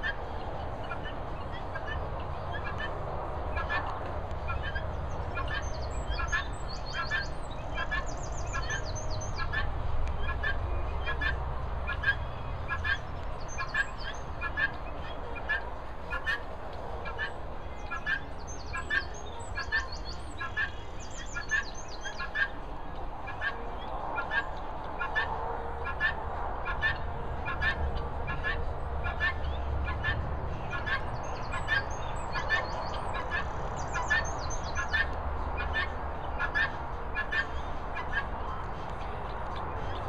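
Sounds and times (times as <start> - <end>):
guineafowl calling: 0.0 - 22.6, 23.2 - 38.6.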